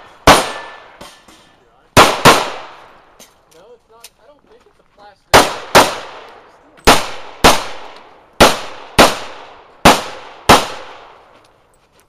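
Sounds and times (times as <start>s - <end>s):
pistol shots with echo: 0.0s - 1.2s, 1.9s - 3.0s, 5.3s - 11.3s.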